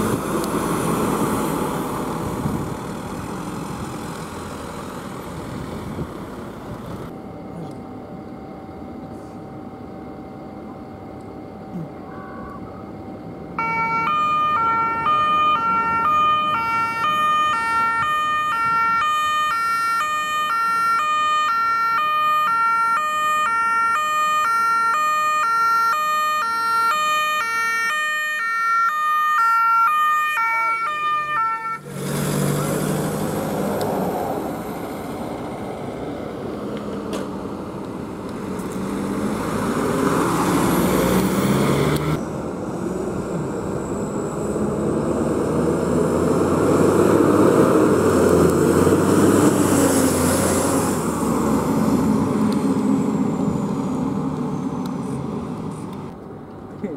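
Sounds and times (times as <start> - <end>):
van engine and tyres passing: 0.0 - 7.5, 29.4 - 56.9
two-tone police siren: 11.8 - 31.9.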